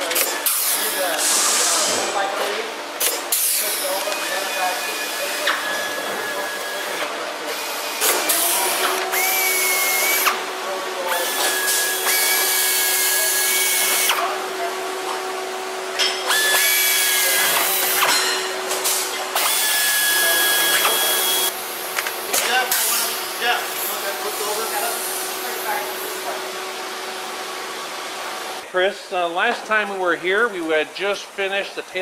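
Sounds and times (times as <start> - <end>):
air drill whining: 3.2 - 14.4, 16.1 - 18.2, 18.9 - 21.6.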